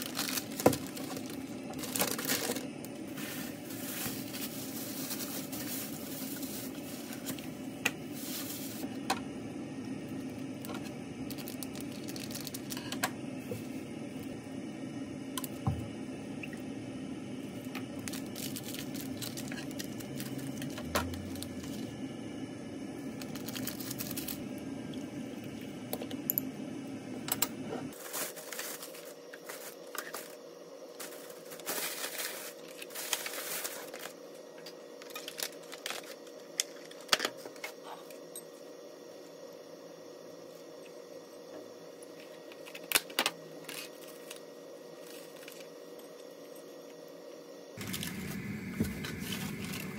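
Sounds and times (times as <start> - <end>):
plastic containers rustling: 0.0 - 7.5, 28.0 - 30.4
steady low hum: 0.0 - 49.9.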